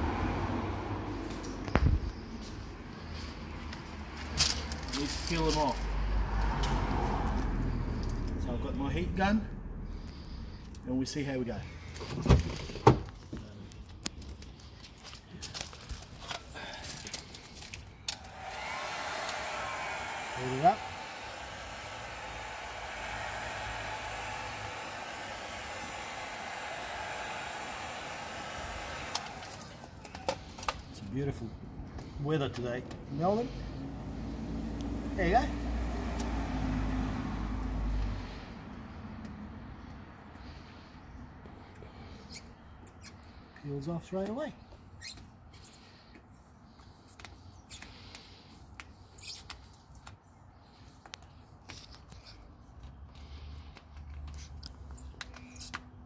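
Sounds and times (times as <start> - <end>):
heat gun blowing hiss: 18.0 - 31.0, 35.1 - 37.5
heat gun switch click: 22.4 - 29.7.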